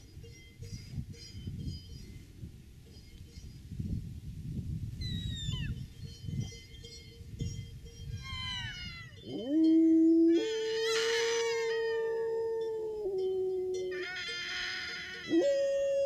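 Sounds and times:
grass blade whistle squeals: 8.1 - 9.2, 10.4 - 11.8, 13.9 - 15.4
dog howling: 8.3 - 16.0.

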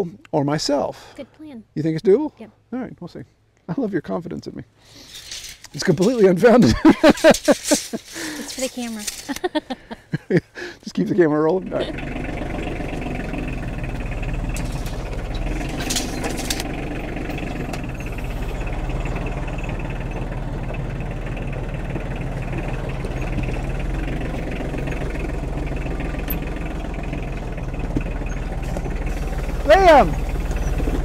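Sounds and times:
metal clanks: 5.0 - 9.4, 11.8 - 31.0
tractor diesel engine running: 5.2 - 9.9, 11.1 - 31.0.

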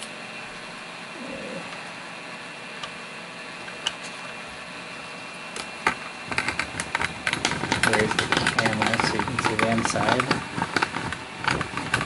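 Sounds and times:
cardboard crackling and rustling: 6.3 - 12.0.

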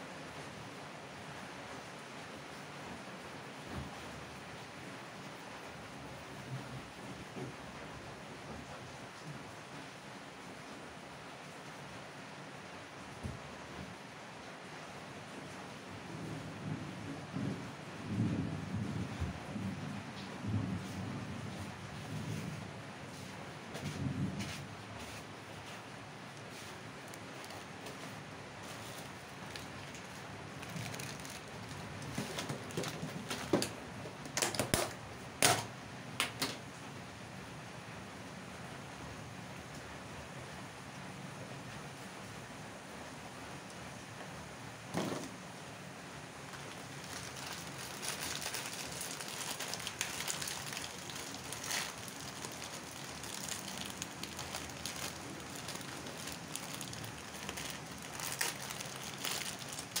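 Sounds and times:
plastic packet crinkling: 26.7 - 28.0, 28.8 - 35.0, 46.5 - 60.0
water boiling in a saucepan: 46.3 - 60.0.

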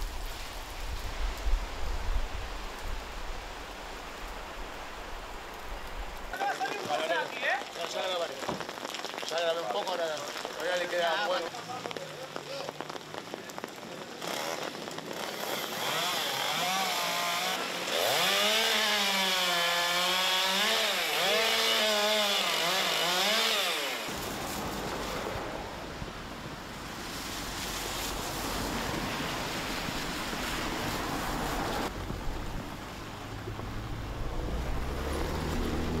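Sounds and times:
cars passing on wet street: 0.0 - 20.4, 23.5 - 36.0
chainsaw cutting wood: 14.1 - 24.2.

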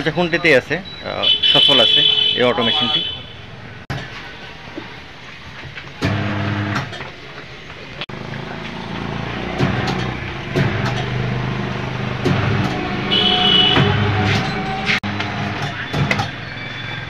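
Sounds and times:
sharp knock: 13.6 - 14.4.

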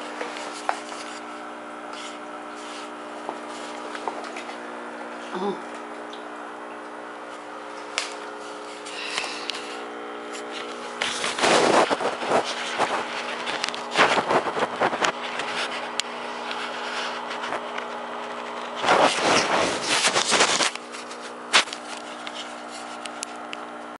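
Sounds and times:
electrical hum: 0.0 - 24.0
microphone handling noise: 9.6 - 22.6.

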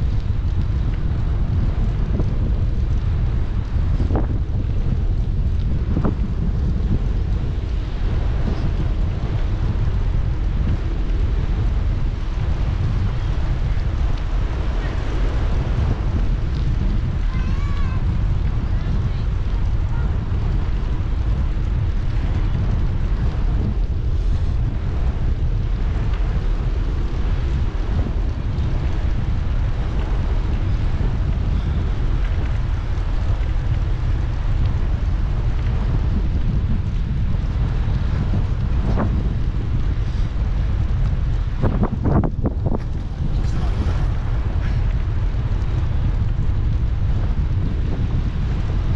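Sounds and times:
wind buffeting microphone: 0.0 - 48.9.

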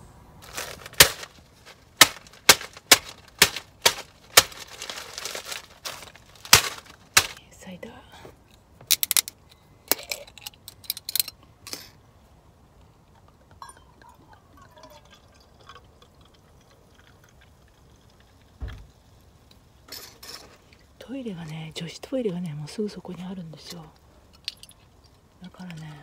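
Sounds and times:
liquid pouring into metal tumbler: 13.5 - 18.6
dull thump: 18.6 - 18.9.

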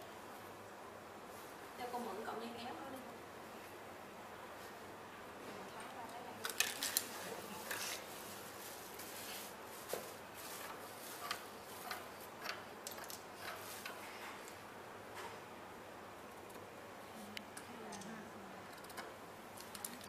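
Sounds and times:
hand tools clicking and tapping: 11.2 - 14.0.

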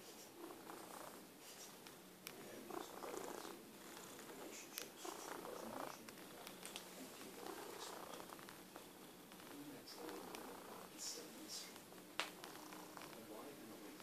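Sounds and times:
cat purring: 0.0 - 14.0
faint clicks: 8.2 - 10.6.

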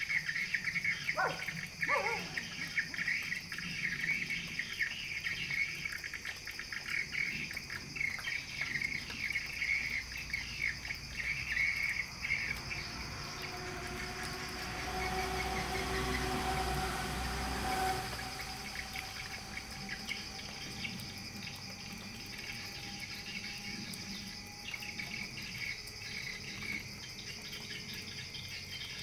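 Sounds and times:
low hum with held tones: 8.9 - 28.2.

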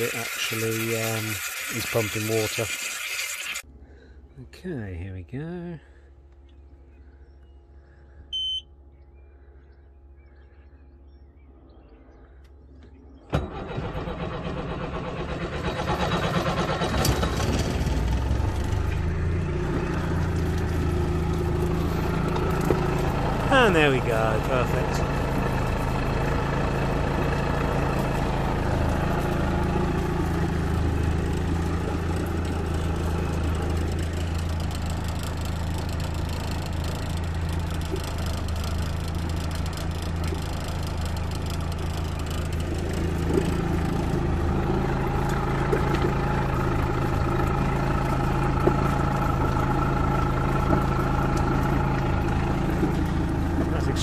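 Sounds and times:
water churning in a tub: 0.0 - 3.6
outboard motor idling: 0.0 - 4.8, 5.5 - 54.0.

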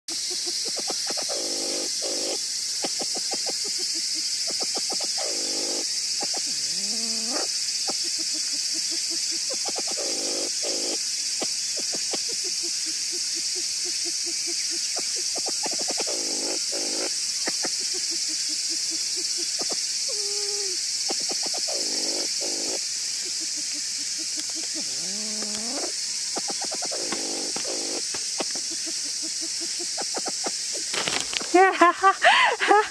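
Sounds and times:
insects droning: 0.1 - 32.9
animal squeaky calls: 4.5 - 11.0, 11.8 - 29.1.

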